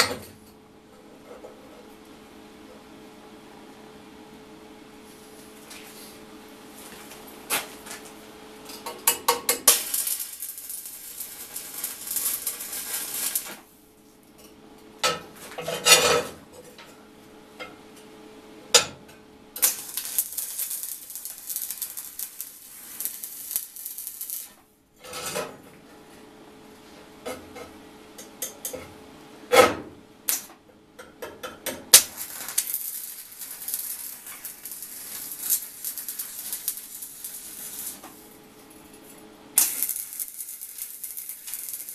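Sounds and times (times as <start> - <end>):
welding arc crackling: 8.8 - 13.8, 19.6 - 24.6, 31.9 - 38.5, 39.5 - 41.9.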